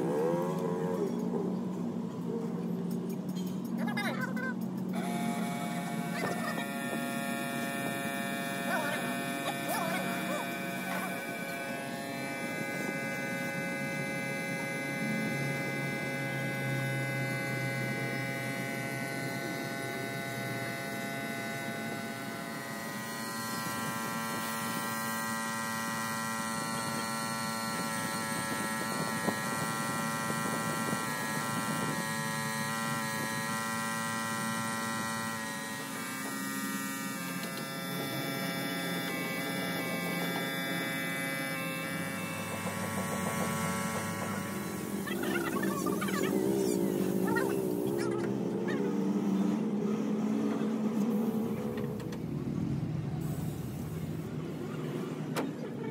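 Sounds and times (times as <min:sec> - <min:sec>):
small motor humming: 0:00.0 - 0:55.9
paint spray gun hissing: 0:53.2 - 0:54.3.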